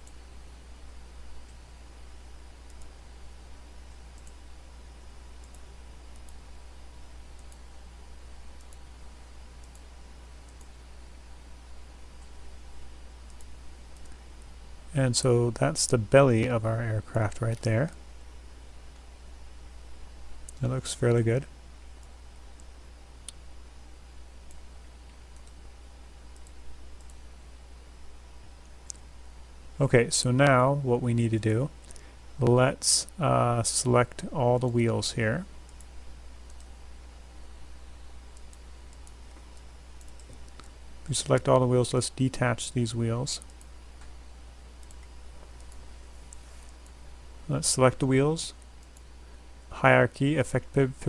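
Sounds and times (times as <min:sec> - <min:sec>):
computer mouse clicks: 0:00.0 - 0:00.2, 0:02.6 - 0:03.0, 0:03.9 - 0:04.4, 0:05.0 - 0:06.4, 0:07.3 - 0:07.8, 0:08.6 - 0:08.9, 0:09.6 - 0:10.8, 0:13.2 - 0:14.4, 0:24.4 - 0:25.6, 0:26.3 - 0:27.2, 0:35.6 - 0:36.7, 0:38.3 - 0:40.8, 0:43.4 - 0:44.2, 0:44.8 - 0:47.0, 0:48.5 - 0:49.1
faint microphone hiss: 0:00.0 - 0:51.0
low electrical hum: 0:00.0 - 0:51.0.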